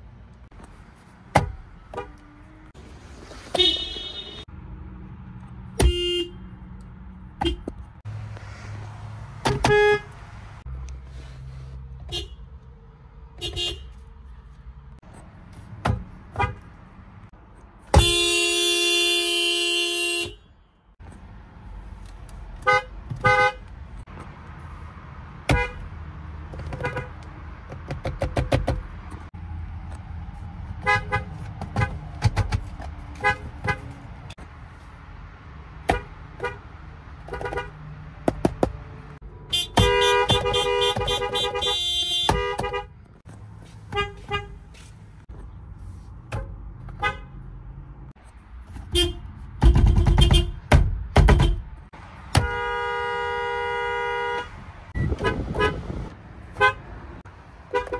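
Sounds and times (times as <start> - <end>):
car horn toots: 3.6 - 4.5, 5.8 - 6.6, 7.4 - 7.8, 9.5 - 10.2, 13.4 - 14.0, 17.9 - 20.6, 22.6 - 23.6, 37.3 - 37.8, 39.5 - 43.0, 43.9 - 44.6, 47.0 - 47.3, 48.9 - 50.6, 51.2 - 51.7, 52.3 - 55.9, 56.6 - 56.8
long car horn blasts: 9.6 - 10.1, 17.9 - 20.6, 39.5 - 42.9, 43.9 - 44.6, 52.3 - 55.9, 56.6 - 56.8.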